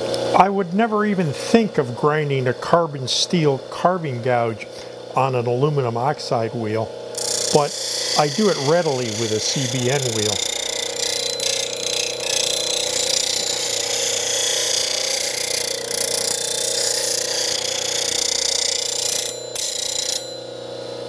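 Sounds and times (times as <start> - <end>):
bench grinder motor hum: 6.9 - 21.0
steel grinding on wheel: 7.2 - 20.4.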